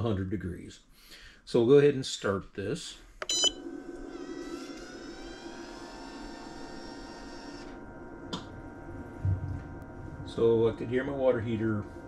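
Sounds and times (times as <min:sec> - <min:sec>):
water pumps humming: 0:03.6 - 0:12.0.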